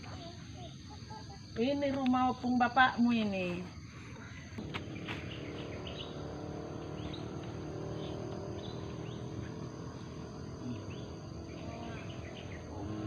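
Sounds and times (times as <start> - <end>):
crickets buzzing: 0.0 - 13.0
bird chirps: 4.6 - 13.0.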